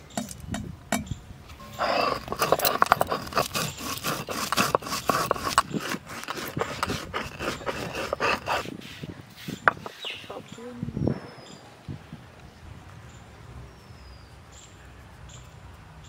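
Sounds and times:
gritty scraping and crunching clicks: 1.5 - 10.4
stone roller grinding spices: 1.6 - 10.2.

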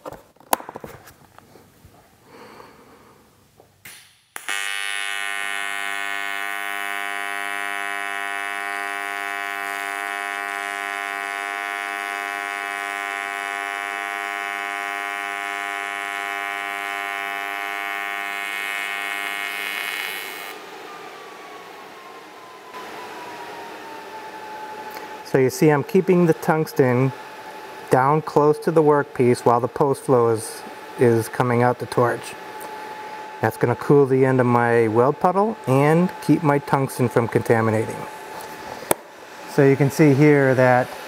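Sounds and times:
welding arc buzzing: 3.8 - 20.6.

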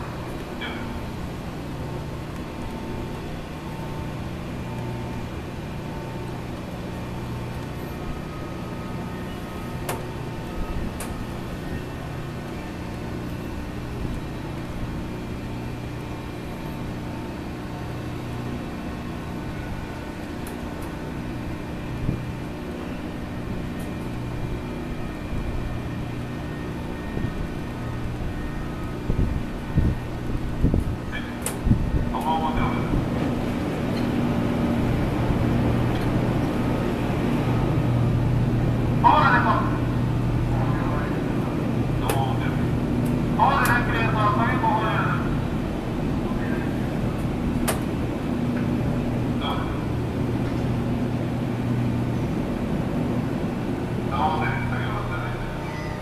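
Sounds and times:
ferry machinery humming: 0.0 - 56.0.

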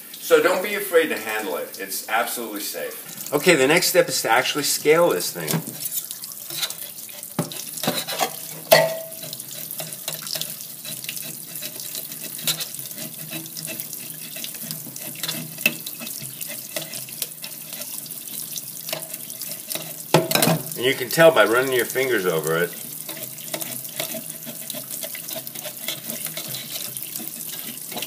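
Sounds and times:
tap water running into sink: 3.0 - 28.0
knife scraping fish scales: 5.7 - 8.5, 9.2 - 20.1, 22.8 - 28.0.

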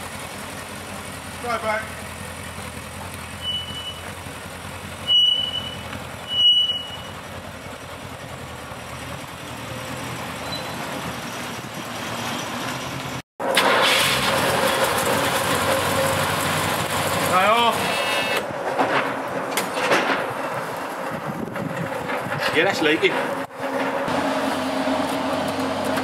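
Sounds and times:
car engine idling: 0.0 - 12.0
short high squeal: 3.4 - 4.2, 5.0 - 7.2, 10.4 - 11.0, 17.8 - 18.4.

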